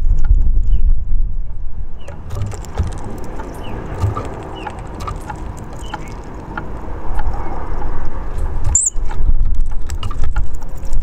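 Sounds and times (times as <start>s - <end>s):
low rumble: 0.0s - 11.0s
birds cracking seeds: 2.0s - 11.0s
high bird chirps: 3.2s - 6.6s, 8.6s - 9.1s.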